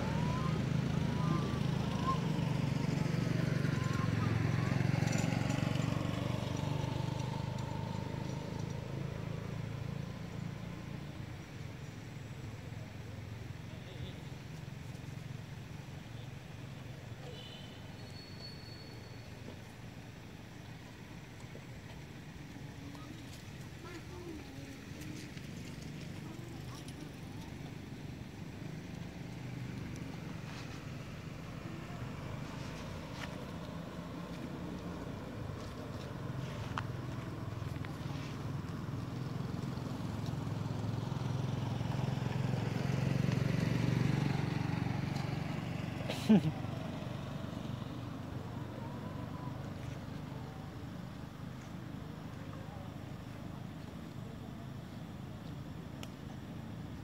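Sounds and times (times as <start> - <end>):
vehicle engine humming: 0.0 - 57.0
faint clicks: 55.4 - 56.2.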